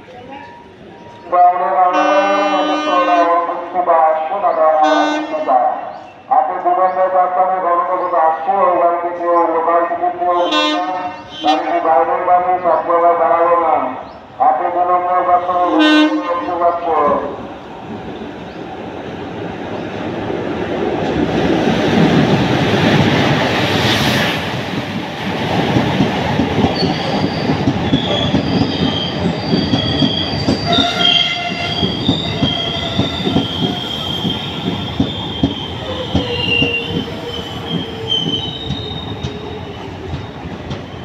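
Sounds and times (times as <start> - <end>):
train rumble: 17.0 - 41.0.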